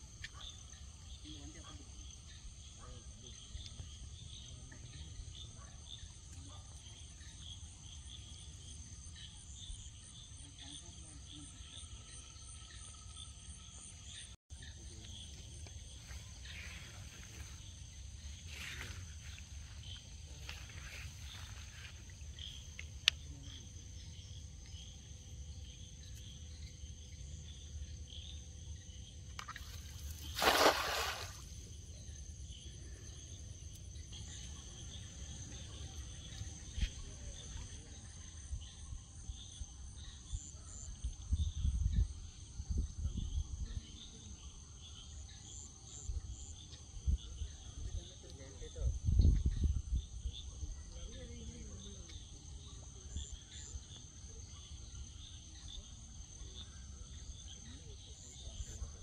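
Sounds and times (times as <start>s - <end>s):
insects chirring: 0.0s - 59.0s
cast net splashing into pond: 29.3s - 31.6s.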